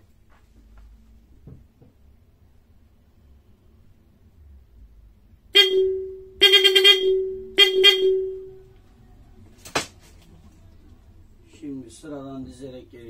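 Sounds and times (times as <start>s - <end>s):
electric car horn blasts: 5.6s - 8.7s.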